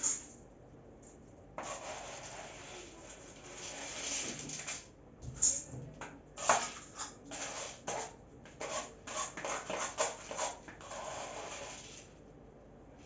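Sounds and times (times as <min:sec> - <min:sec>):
beans scraping and rattling in pot: 0:01.6 - 0:05.7, 0:06.4 - 0:12.2.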